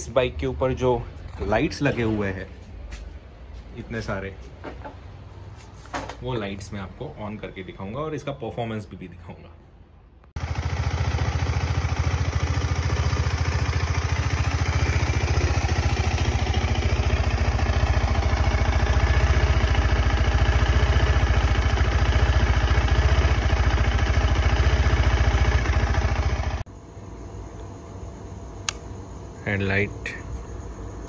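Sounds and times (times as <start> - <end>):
motorcycle engine idling: 10.4 - 26.7.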